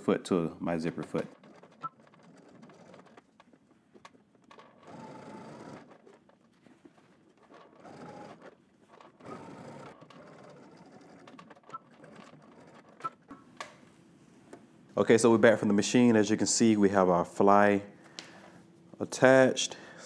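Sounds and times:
sewing machine stitching: 0.9 - 13.4.

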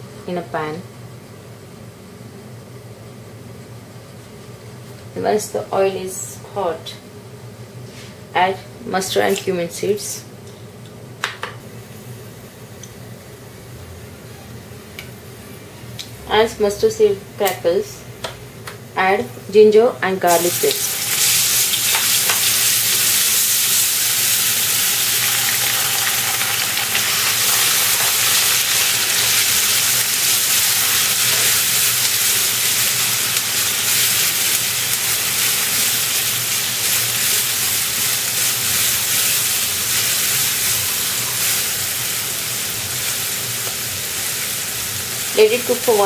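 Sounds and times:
paste sizzling in hot oil: 20.3 - 46.0.

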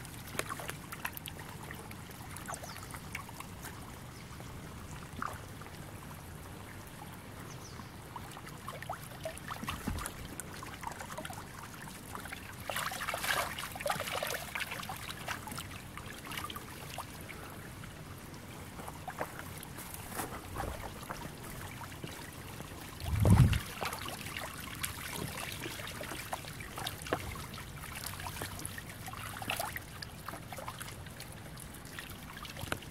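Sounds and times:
river water trickling among stones: 0.0 - 32.9
loud low thump: 23.1 - 23.6.

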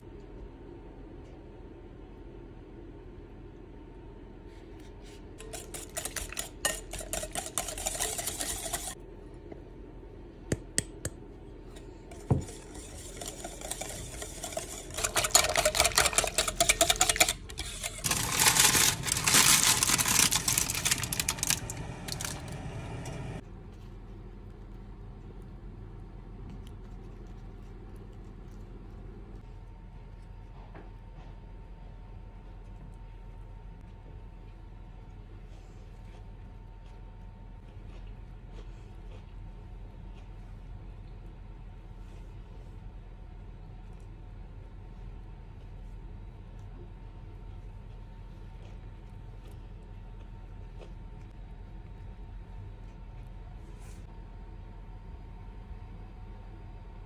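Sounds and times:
whisk beating in glass bowl: 5.4 - 9.0, 12.1 - 21.4
whisk tapping: 5.4 - 9.0, 12.1 - 19.6.

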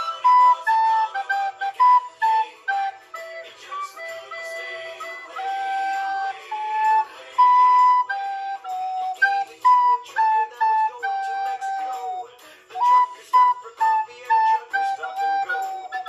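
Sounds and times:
recorder playing jazzy riff: 0.0 - 16.0
breaths between phrases: 12.4 - 12.7.

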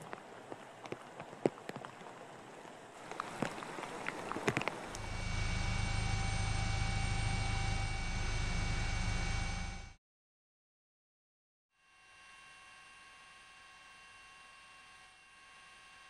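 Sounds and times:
people wading through water: 0.0 - 5.1
helicopter engine and rotor: 4.9 - 10.0.

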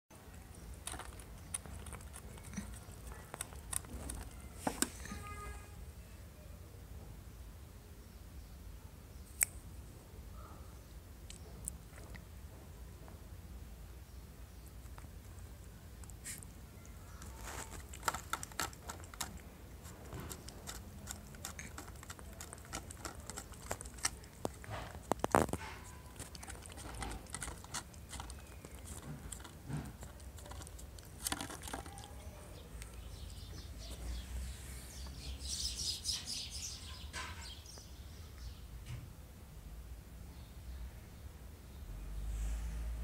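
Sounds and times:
cat chewing and licking: 0.3 - 4.6, 14.7 - 34.2.

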